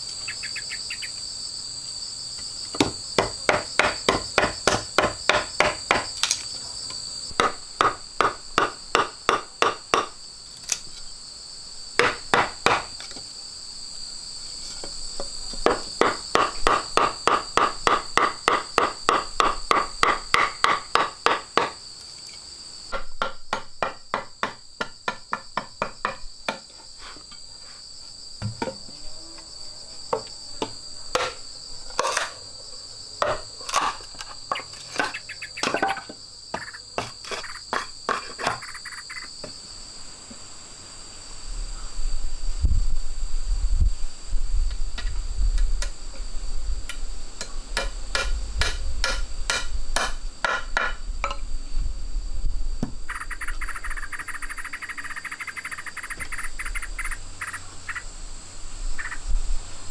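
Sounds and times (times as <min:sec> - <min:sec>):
insects trilling: 0:00.0 - 0:59.9
hammer strikes: 0:02.8 - 0:06.1, 0:47.8 - 0:51.4.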